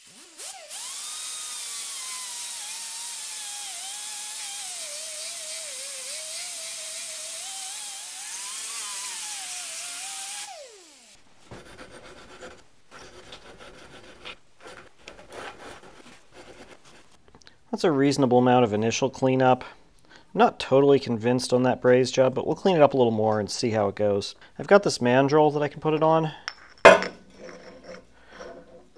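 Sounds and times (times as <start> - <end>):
air grinder whining: 0.0 - 11.2
hand file scraping metal: 11.5 - 17.0, 27.3 - 28.9.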